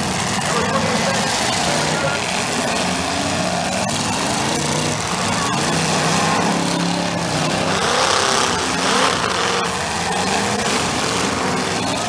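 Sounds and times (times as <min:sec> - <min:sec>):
car engine revving: 0:00.0 - 0:12.0
car engines running: 0:00.0 - 0:12.0.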